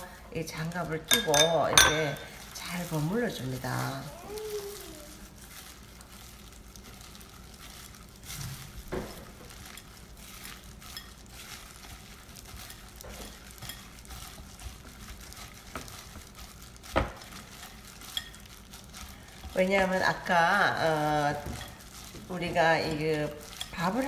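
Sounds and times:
gloved hands squishing sticky rice: 0:02.2 - 0:24.0.

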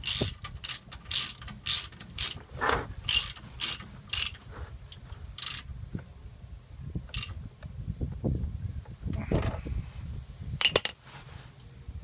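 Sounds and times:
ratchet wrench clicking: 0:00.0 - 0:02.4, 0:03.1 - 0:04.4, 0:05.4 - 0:05.7, 0:07.1 - 0:07.4.

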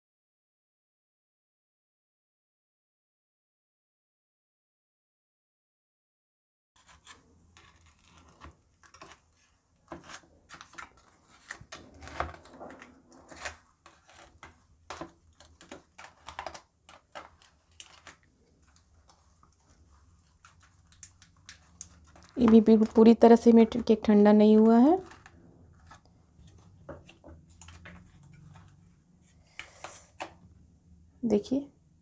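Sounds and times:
knife scraping foil tray: 0:06.8 - 0:23.2.

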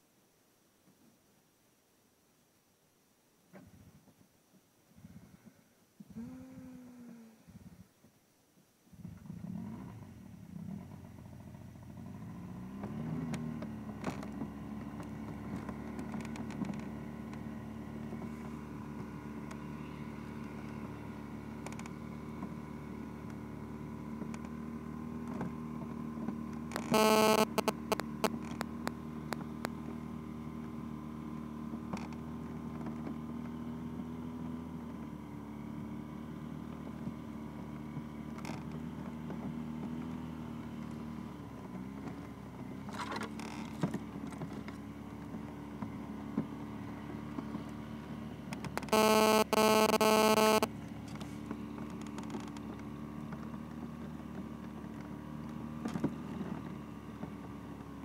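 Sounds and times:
snowmobile engine running: 0:26.8 - 0:28.8, 0:48.9 - 0:50.7.

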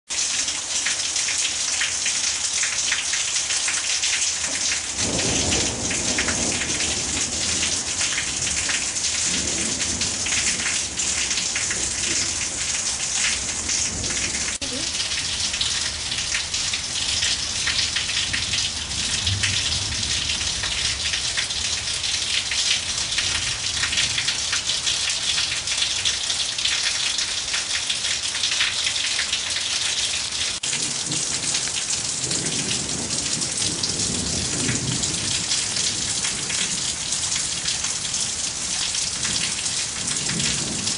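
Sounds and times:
heavy rain pouring: 0:00.1 - 0:40.9
low thunder rumbles: 0:04.5 - 0:21.7, 0:30.6 - 0:40.9.

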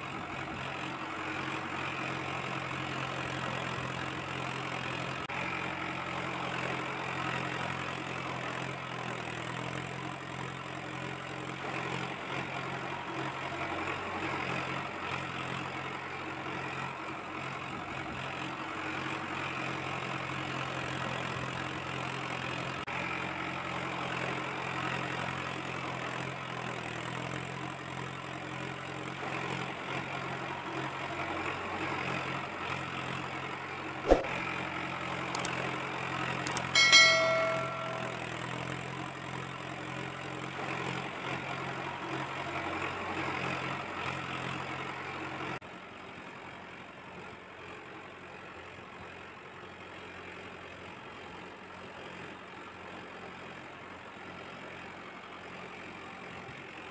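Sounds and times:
click: 0:35.3 - 0:35.5, 0:36.5 - 0:36.7
bell chime: 0:36.5 - 0:38.4.

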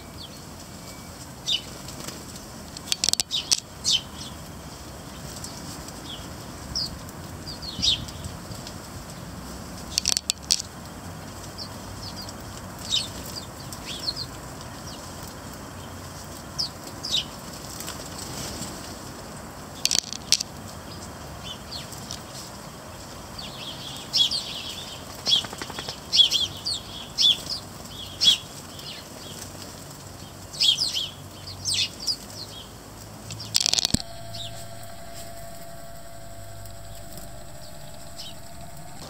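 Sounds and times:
birds fluttering wings: 0:25.1 - 0:26.4.

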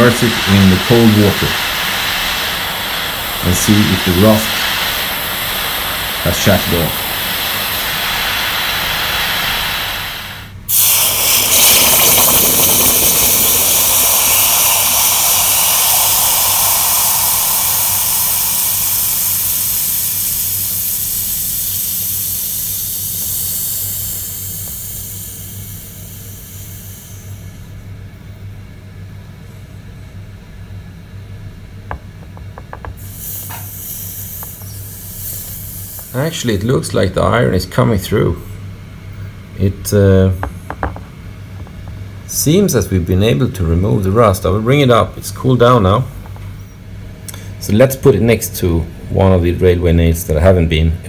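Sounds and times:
hot metal hissing in water: 0:00.0 - 0:27.7, 0:33.0 - 0:36.6
gas torch flame hissing: 0:00.0 - 0:28.0, 0:31.9 - 0:38.7, 0:39.6 - 0:46.6.

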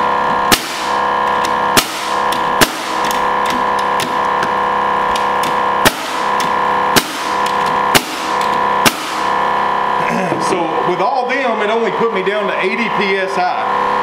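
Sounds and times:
air compressor humming: 0:00.0 - 0:14.0
nailer shooting nails: 0:00.5 - 0:09.4.

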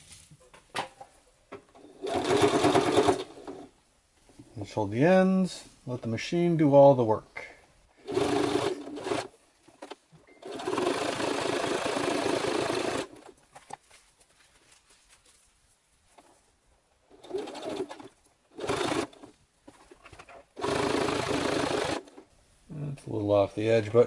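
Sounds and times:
electric sewing machine stitching: 0:01.8 - 0:03.7, 0:08.0 - 0:13.3, 0:17.1 - 0:19.3, 0:20.6 - 0:22.2.

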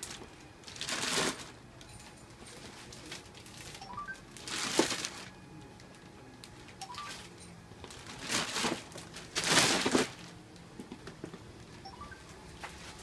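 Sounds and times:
plastic bags rustling: 0:00.0 - 0:01.6, 0:02.5 - 0:05.3, 0:05.9 - 0:10.4.

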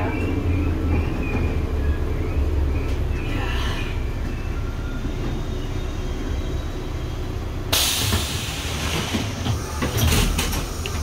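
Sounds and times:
low rumble of train car: 0:00.0 - 0:11.0
loud air hiss: 0:07.7 - 0:10.1.

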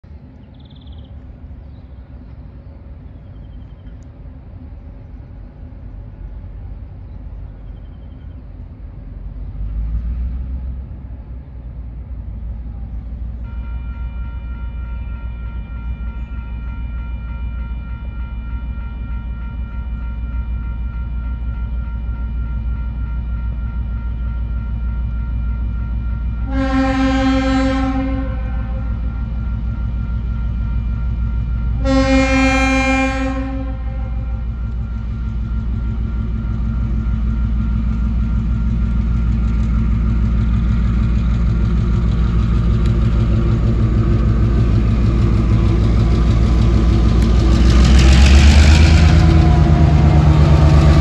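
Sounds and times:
diesel locomotive rumble: 0:00.0 - 0:51.0.

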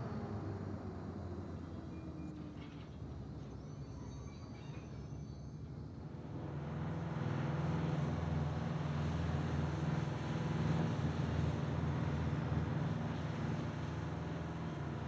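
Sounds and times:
diesel machinery engine drone: 0:05.0 - 0:15.0.

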